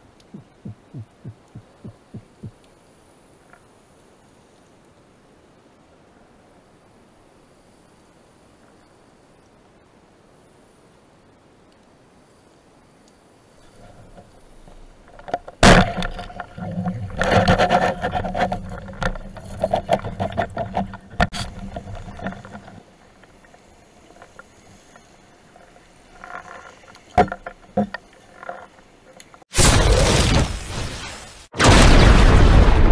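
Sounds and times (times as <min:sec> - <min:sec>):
faint clicks: 0:00.1 - 0:02.8, 0:11.6 - 0:12.0, 0:13.0 - 0:15.6.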